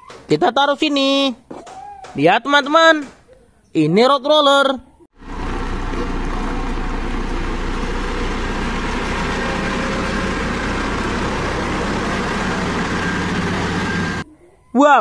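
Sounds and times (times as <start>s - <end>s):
diesel engine low hum: 5.2s - 14.2s.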